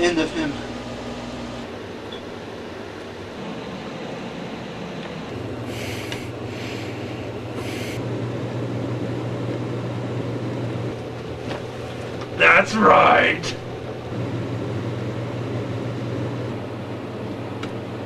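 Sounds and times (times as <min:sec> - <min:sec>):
low drone with hiss: 0:00.0 - 0:11.0
short scratchy hisses: 0:05.7 - 0:08.0.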